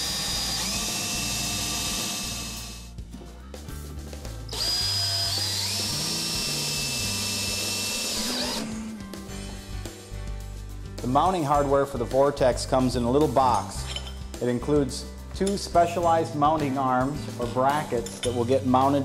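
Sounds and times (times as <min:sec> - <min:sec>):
cordless drill running: 0:00.0 - 0:02.9, 0:04.5 - 0:08.7
background music: 0:00.0 - 0:19.0.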